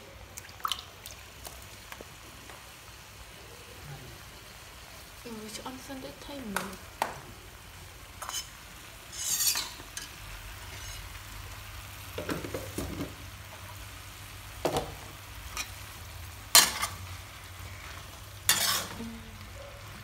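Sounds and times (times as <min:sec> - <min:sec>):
faint sizzle: 0:00.0 - 0:20.0
metal spatula scraping wok: 0:08.2 - 0:11.2, 0:16.5 - 0:19.2.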